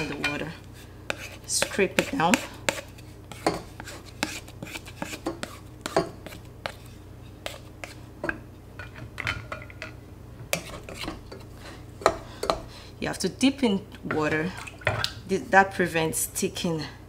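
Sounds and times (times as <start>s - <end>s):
utensils scraping saucepan: 0.0s - 9.0s, 10.5s - 12.7s.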